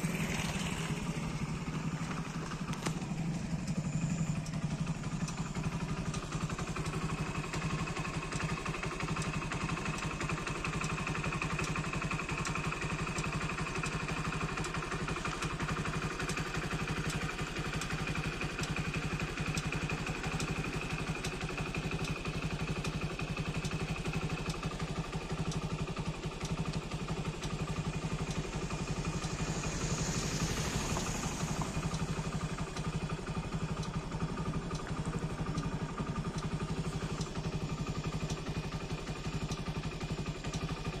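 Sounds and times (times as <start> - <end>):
vehicle engine running: 0.0 - 41.0
brief hiss: 28.5 - 32.7.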